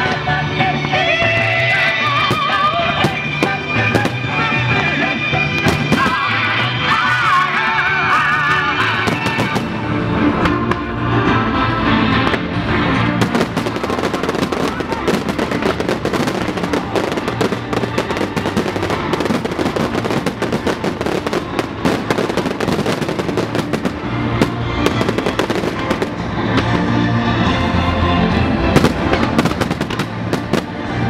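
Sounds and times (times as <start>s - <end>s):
rock music: 0.0s - 31.0s
fireworks bursting: 1.9s - 4.5s, 5.5s - 6.8s, 8.3s - 9.8s, 13.1s - 26.9s, 28.7s - 31.0s.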